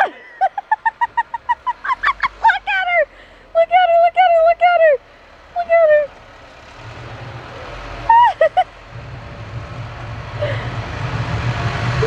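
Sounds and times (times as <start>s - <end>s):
low rumble: 4.4s - 12.0s.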